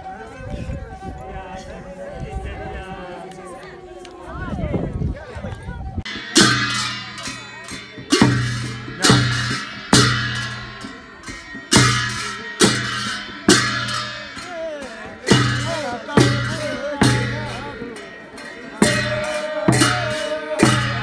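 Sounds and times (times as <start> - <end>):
deep drum beat: 5.8 - 21.0
hand cymbals clashing: 6.1 - 21.0
voices singing: 14.4 - 21.0.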